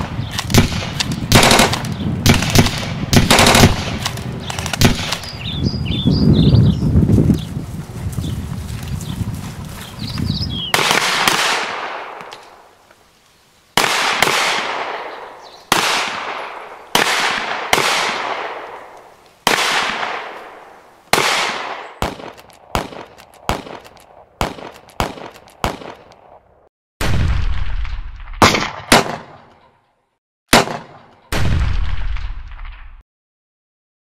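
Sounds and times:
echoing gunshots: 0:00.0 - 0:05.4, 0:10.7 - 0:12.7, 0:13.8 - 0:26.4, 0:27.0 - 0:29.6, 0:30.5 - 0:32.8.

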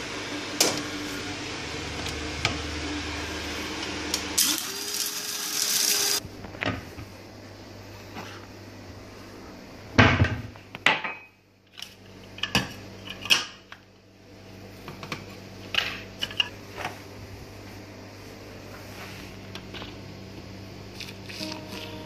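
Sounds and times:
steady low hum: 0:11.4 - 0:22.0.

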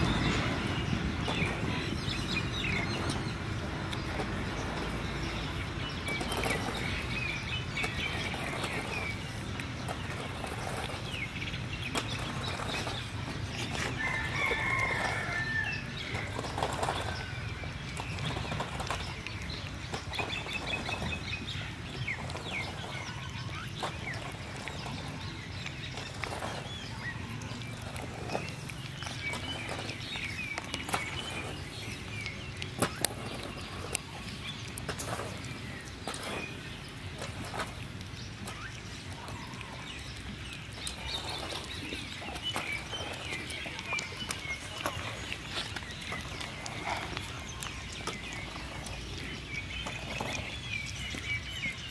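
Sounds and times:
birds chirping: 0:00.0 - 0:51.9
puppy chewing and lapping: 0:17.2 - 0:51.9.

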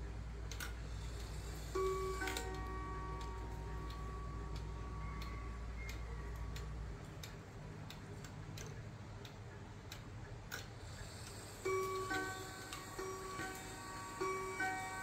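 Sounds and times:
wall clock ticking: 0:00.0 - 0:15.0
clock gong ringing: 0:01.7 - 0:06.3, 0:11.6 - 0:15.0.

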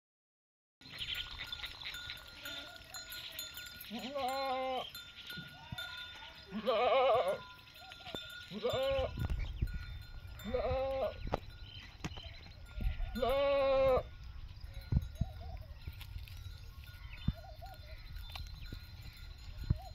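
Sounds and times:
goats bleating: 0:01.4 - 0:07.6, 0:08.3 - 0:09.2, 0:10.4 - 0:11.2, 0:12.8 - 0:14.1.

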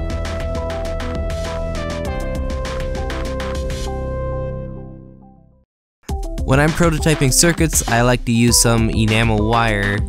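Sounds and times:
fast steady beat: 0:06.1 - 0:10.0.

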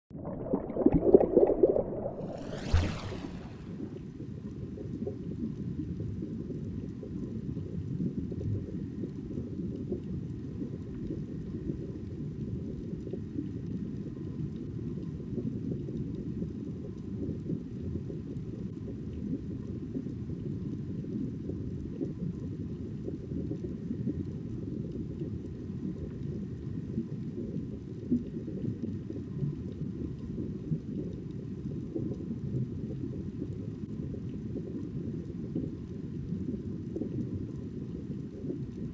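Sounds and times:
muffled underwater rumble: 0:00.1 - 0:38.9.

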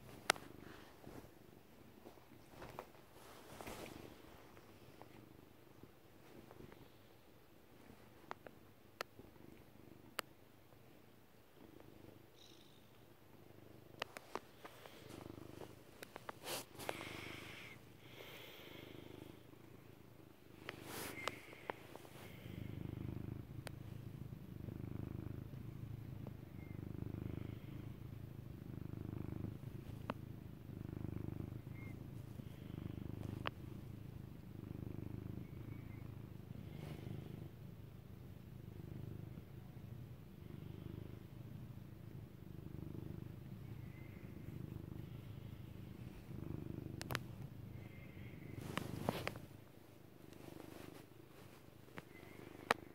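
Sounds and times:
cat purring: 0:00.0 - 0:52.9.

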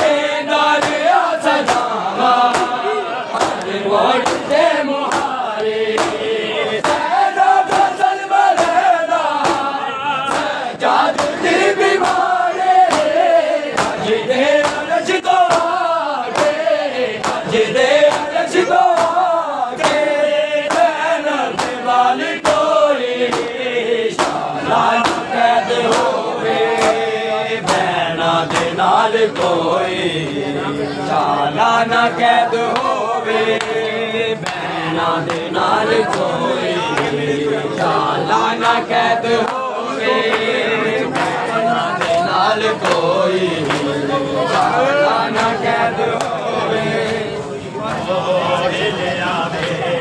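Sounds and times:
hands slapping on chests: 0:00.0 - 0:02.8, 0:03.4 - 0:14.0, 0:14.6 - 0:21.8, 0:22.4 - 0:23.6, 0:24.2 - 0:29.6, 0:41.1 - 0:44.7
men chanting in unison: 0:00.0 - 0:50.0.

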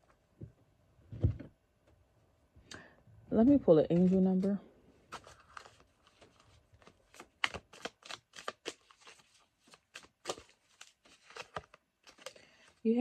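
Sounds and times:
cards being shuffled: 0:03.4 - 0:12.4.

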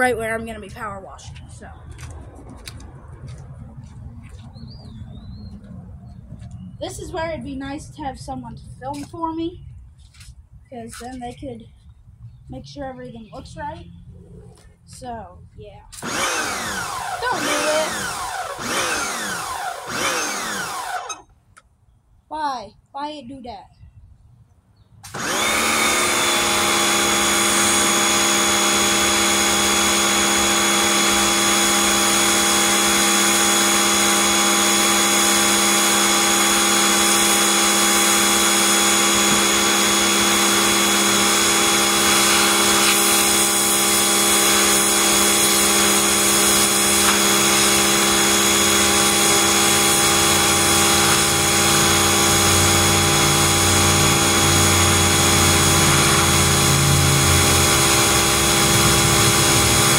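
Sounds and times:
pressure washer motor whining: 0:15.9 - 0:21.4, 0:25.0 - 0:59.9
water jet hissing on concrete: 0:40.8 - 0:59.9.

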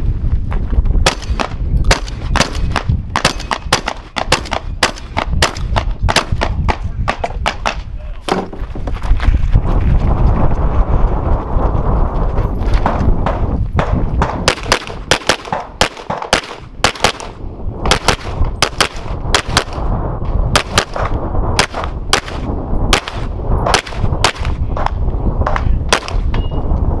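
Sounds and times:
low rumble: 0:00.0 - 0:15.8, 0:16.5 - 0:27.0
pistol shots: 0:01.0 - 0:07.8, 0:13.8 - 0:19.8, 0:20.5 - 0:24.9, 0:25.5 - 0:26.3.

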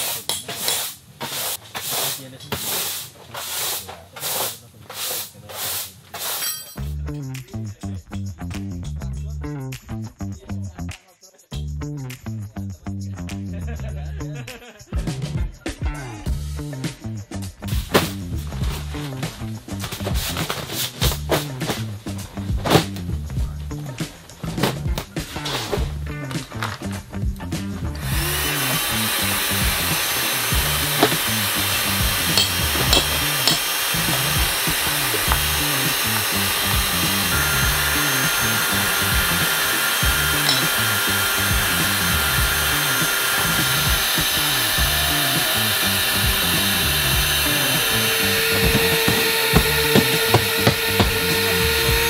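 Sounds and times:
background music with steady beat: 0:06.8 - 0:52.0
electric air pump running: 0:28.0 - 0:52.0.

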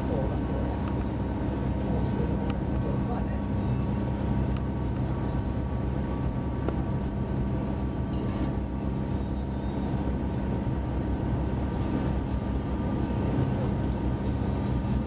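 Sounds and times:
steady electric hum: 0:00.0 - 0:15.0.

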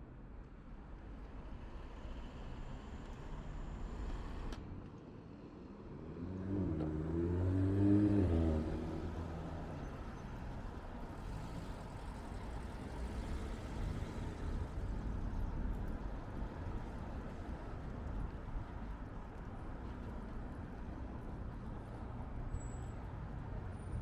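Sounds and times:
street traffic rumble: 0:00.0 - 0:24.0
car accelerating past: 0:06.2 - 0:09.4.

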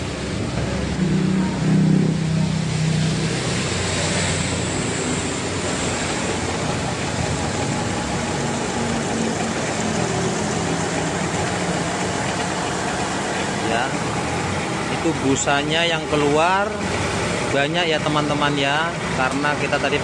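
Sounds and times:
washing machine spinning: 0:00.0 - 0:20.0
rushing water being spun out: 0:02.4 - 0:20.0.

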